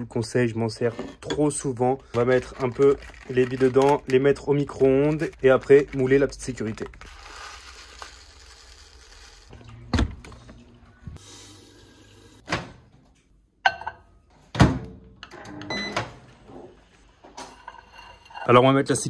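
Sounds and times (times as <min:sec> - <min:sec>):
plastic granules poured into bowl: 0:02.2 - 0:09.5
microwave beep: 0:15.4 - 0:16.3.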